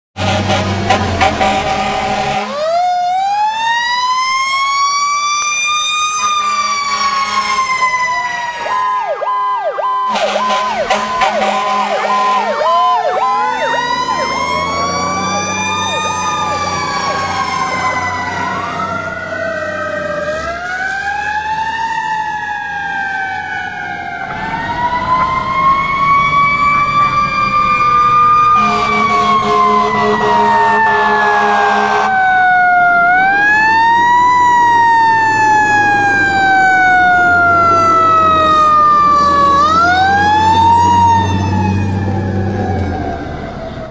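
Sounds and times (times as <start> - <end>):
horn blast: 0.2 - 2.7, 10.1 - 16.7, 28.6 - 32.2
sirens wailing: 0.2 - 43.9
low vehicle rumble: 34.1 - 43.9.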